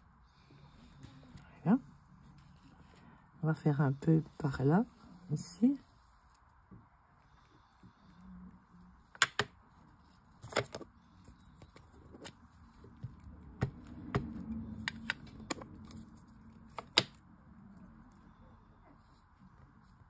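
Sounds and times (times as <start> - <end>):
soft rubbing and dabbing: 0.4 - 9.0.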